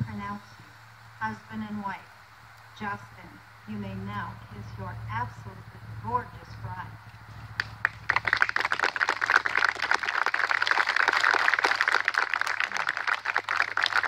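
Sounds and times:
crowd applauding: 7.6 - 14.0.

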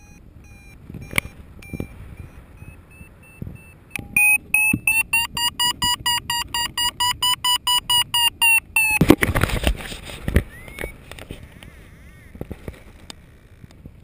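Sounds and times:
variometer beeping rapidly: 0.0 - 9.2.

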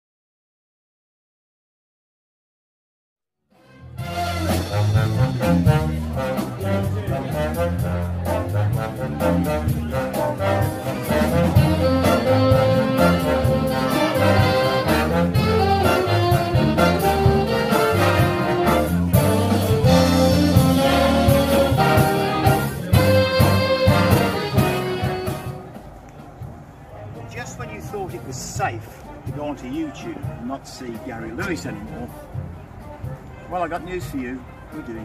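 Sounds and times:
big band jazz brass: 3.6 - 26.0, 27.3 - 35.0
bass line: 4.0 - 25.7.

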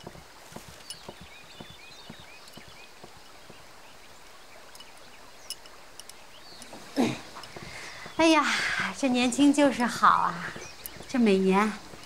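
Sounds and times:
bird chirps: 0.7 - 12.0
light clicks: 4.7 - 6.8.

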